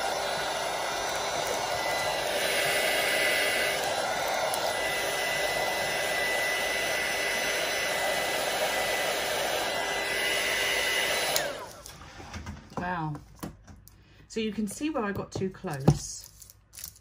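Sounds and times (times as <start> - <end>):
heat gun blowing: 0.0 - 11.9
fan whine: 0.0 - 12.0.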